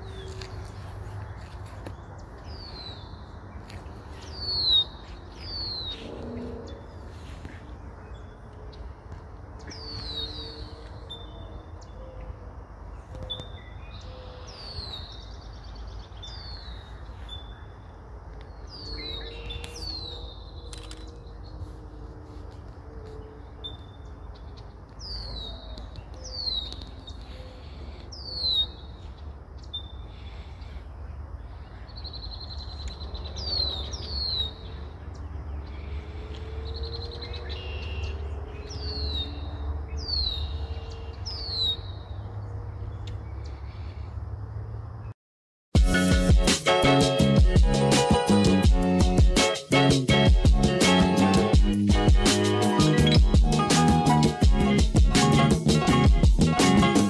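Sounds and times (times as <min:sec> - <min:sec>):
small birds chirping: 0:00.0 - 0:22.0, 0:22.6 - 0:44.2.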